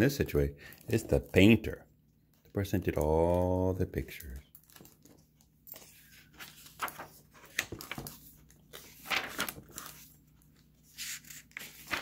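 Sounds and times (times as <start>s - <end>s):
book pages turning: 2.8s - 12.0s.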